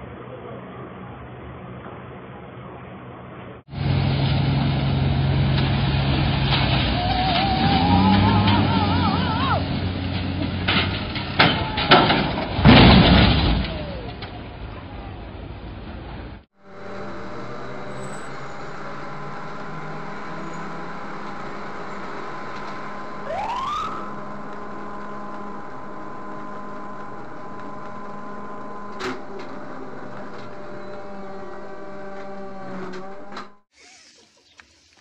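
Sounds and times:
rising whine: 0:16.6 - 0:33.6
car interior drone: 0:16.6 - 0:33.7.

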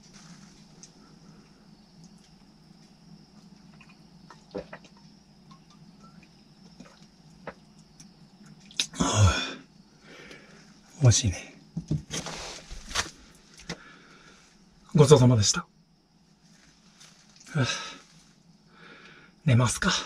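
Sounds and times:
breathy sigh: 0:09.0 - 0:10.5, 0:17.5 - 0:18.1.

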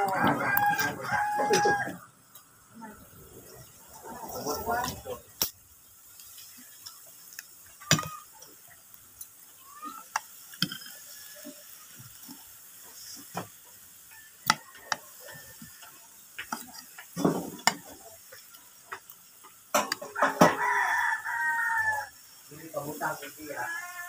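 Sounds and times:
cutlery clinking on a plate: 0:10.6 - 0:11.0, 0:19.7 - 0:20.6.

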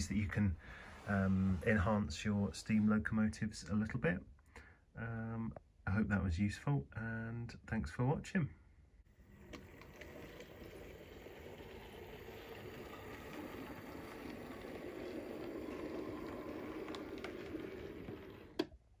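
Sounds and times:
model train rumbling on track: 0:09.4 - 0:18.7.

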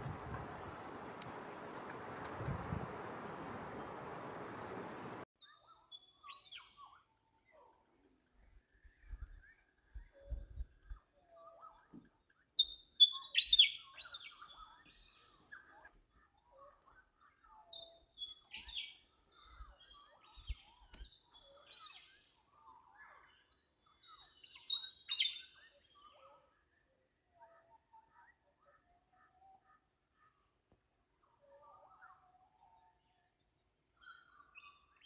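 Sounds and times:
soft low bird calls: 0:00.0 - 0:06.9
small songbirds chirping: 0:00.0 - 0:07.7, 0:08.3 - 0:35.0.

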